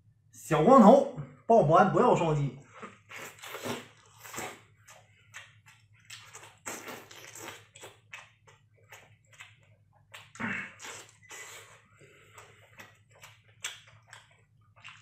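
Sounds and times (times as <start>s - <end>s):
chewing with smacks and clicks: 2.8s - 15.0s
wet slurping: 10.2s - 13.8s.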